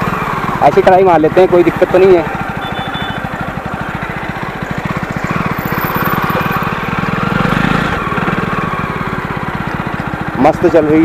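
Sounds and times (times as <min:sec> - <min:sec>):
motorcycle engine running: 0:00.0 - 0:11.0.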